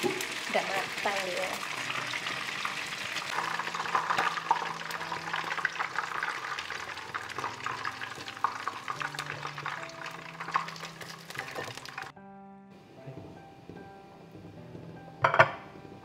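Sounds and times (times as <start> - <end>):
chicken frying in hot oil: 0.0 - 12.1.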